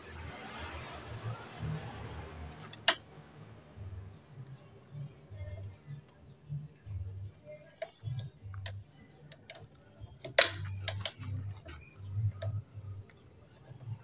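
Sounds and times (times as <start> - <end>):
background music with beat: 0.0 - 14.0
socket wrench clicking on metal: 2.6 - 3.0, 7.8 - 12.6.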